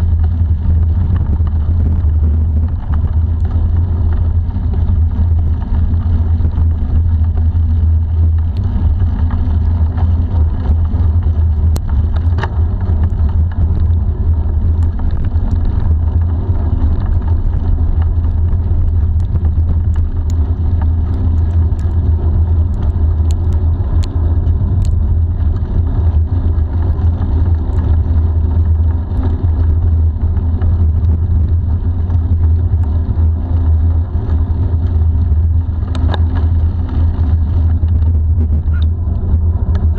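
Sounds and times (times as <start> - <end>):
bicycle tyres on asphalt: 0.0 - 39.9
wind buffeting microphone: 0.0 - 39.9
small clicks: 14.7 - 25.7, 35.8 - 36.8.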